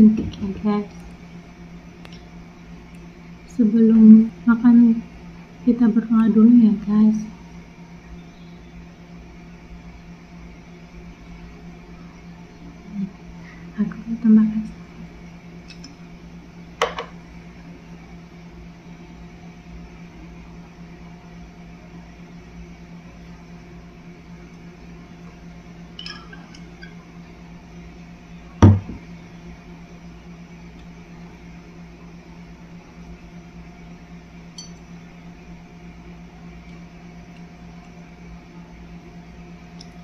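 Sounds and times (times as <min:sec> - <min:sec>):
steady low hum: 0:00.0 - 0:40.0
glass bottle clinks: 0:26.0 - 0:26.4, 0:34.6 - 0:34.8.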